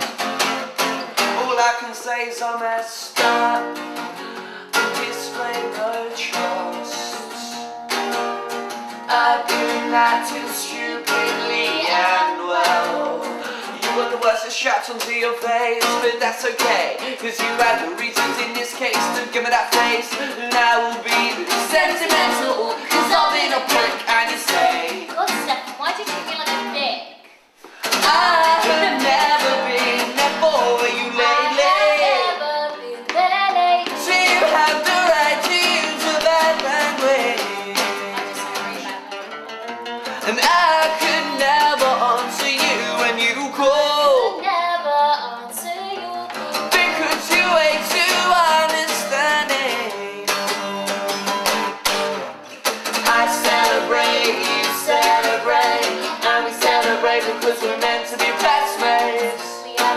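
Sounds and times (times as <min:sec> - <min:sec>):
acoustic guitar strumming: 0:00.0 - 0:59.9
man singing: 0:01.2 - 0:03.8, 0:04.7 - 0:07.8, 0:09.1 - 0:25.1, 0:27.8 - 0:32.4, 0:33.9 - 0:39.1, 0:40.0 - 0:44.4, 0:46.3 - 0:59.9
woman singing: 0:09.0 - 0:14.2, 0:19.7 - 0:25.4, 0:27.9 - 0:39.3, 0:44.2 - 0:48.6, 0:53.1 - 0:59.9.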